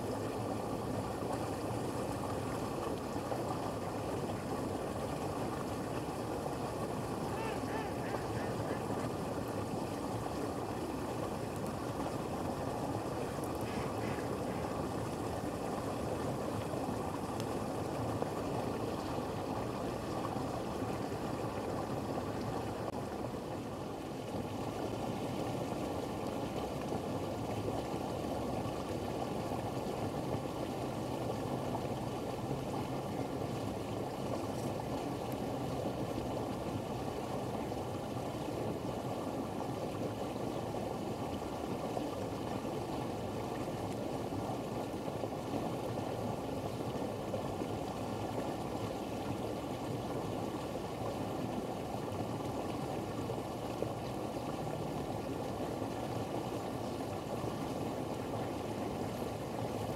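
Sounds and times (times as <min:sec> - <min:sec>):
outdoor background noise: 0:00.0 - 0:59.9.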